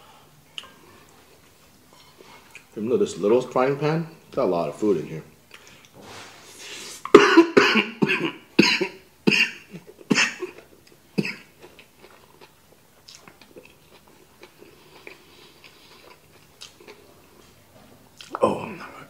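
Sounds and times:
soft chewing: 0.5s - 2.8s, 9.8s - 18.4s
man coughing: 7.1s - 10.6s, 11.2s - 11.5s.

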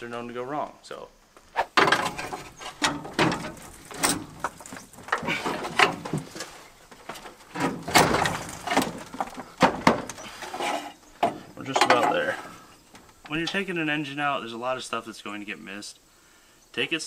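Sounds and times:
metal squeaks and scrapes: 1.6s - 6.7s, 10.1s - 12.6s.

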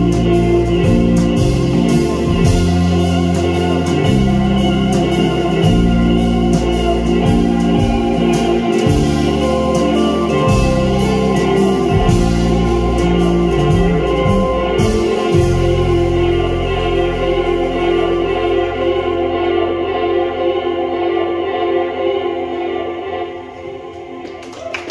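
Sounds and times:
drums with cymbal strokes: 0.0s - 19.1s
bass guitar: 0.0s - 23.5s
keyboard: 0.0s - 24.4s
electric guitars: 0.0s - 24.9s.

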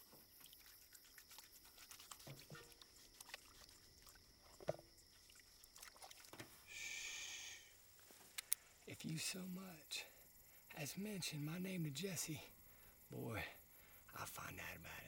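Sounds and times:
bathwater sloshing and dripping: 0.0s - 6.6s.

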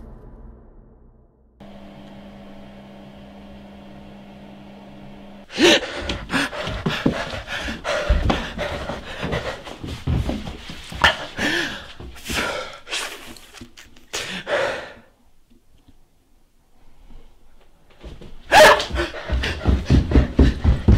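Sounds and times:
steady low hum: 1.6s - 8.4s
person gasping and panting: 5.5s - 10.2s, 11.0s - 15.2s, 18.5s - 20.9s.

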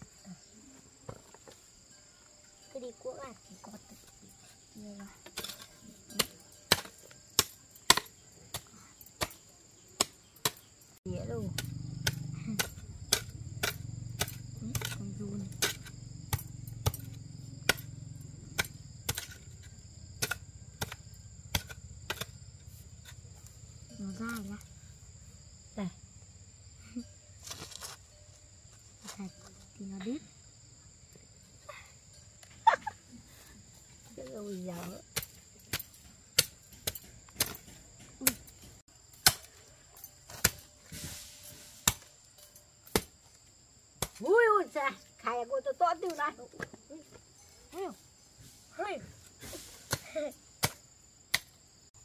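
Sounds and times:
insects droning: 0.0s - 52.0s
hoe chopping into ground: 5.4s - 9.4s, 11.5s - 17.9s, 18.6s - 22.4s, 40.3s - 42.2s.

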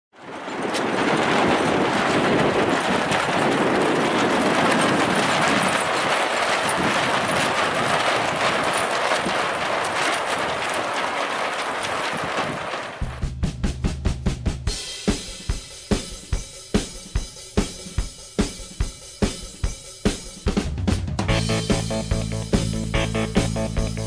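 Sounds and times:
music with drum beat and bass: 13.0s - 24.0s.

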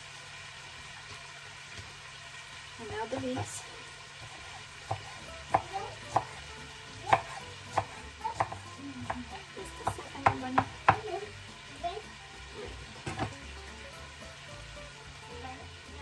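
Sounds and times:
chicken sizzling in a pan: 0.0s - 16.0s
knife chopping on wooden board: 4.2s - 11.2s, 13.0s - 13.5s.

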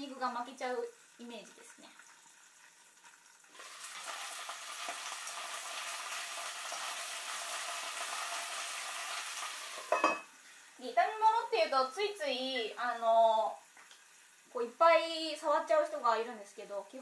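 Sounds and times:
cabbage sizzling in frying pan: 0.0s - 17.0s.

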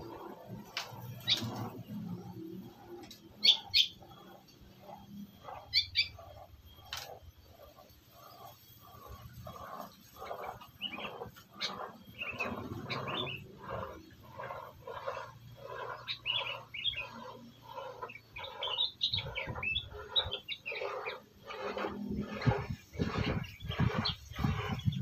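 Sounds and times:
bulbuls calling: 10.4s - 25.0s.

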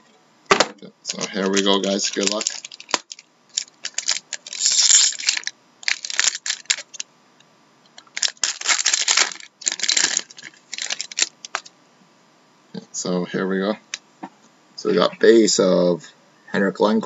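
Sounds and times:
foil wrapper tearing and crinkling: 1.1s - 7.0s, 8.0s - 11.7s.

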